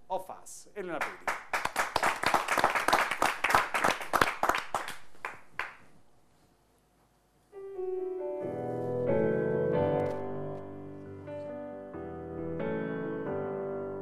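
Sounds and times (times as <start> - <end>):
audience clapping: 0.9 - 6.0
gentle piano: 7.5 - 14.0.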